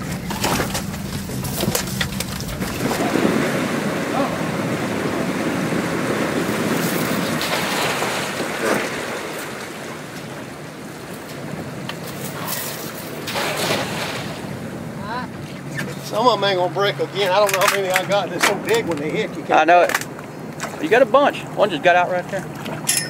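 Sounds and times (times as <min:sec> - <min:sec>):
wind on microphone: 0:00.0 - 0:13.2
water splashing and streaming: 0:00.0 - 0:23.0.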